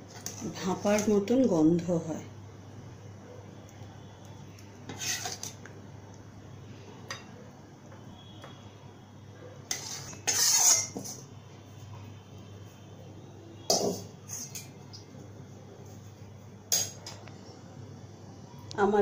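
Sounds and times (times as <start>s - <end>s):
metal spatula scraping a pan: 4.9s - 5.6s, 9.7s - 11.3s, 13.7s - 14.7s.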